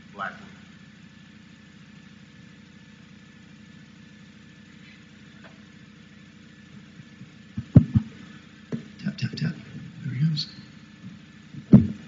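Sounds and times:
low buzzing hum: 0:00.0 - 0:12.0
loud thumps: 0:07.6 - 0:09.5, 0:11.0 - 0:12.0.

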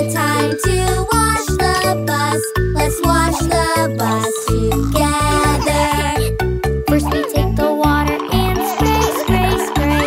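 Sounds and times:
children's song singing: 0:00.0 - 0:10.0.

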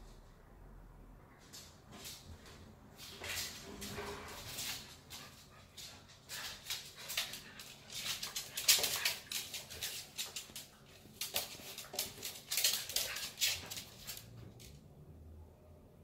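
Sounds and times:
dogs scuffling on floor: 0:02.0 - 0:14.8.

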